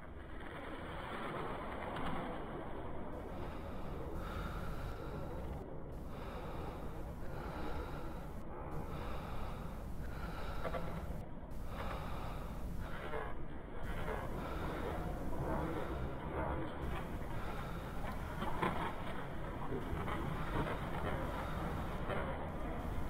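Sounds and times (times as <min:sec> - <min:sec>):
rough human breathing: 0:03.1 - 0:23.0
steady hiss: 0:03.2 - 0:13.2, 0:20.3 - 0:23.0.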